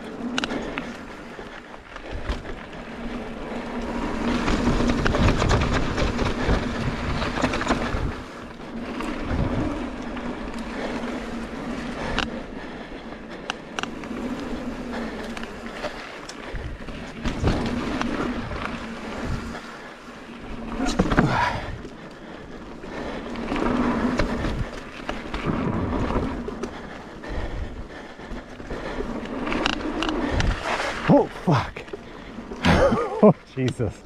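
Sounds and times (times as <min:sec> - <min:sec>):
bike tyres rolling over dirt and rock: 0:00.0 - 0:34.0
rushing wind noise: 0:00.6 - 0:12.3, 0:23.0 - 0:31.8
bike knocks and rattles: 0:03.8 - 0:09.8, 0:13.7 - 0:19.6, 0:20.7 - 0:21.8.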